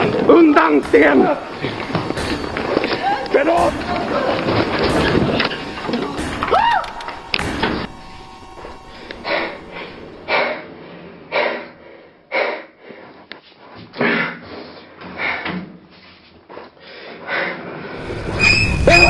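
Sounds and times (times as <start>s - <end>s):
high squeal: 0.6s - 10.4s, 18.0s - 19.0s
person panting heavily: 10.3s - 13.3s, 14.1s - 15.8s, 16.8s - 18.0s.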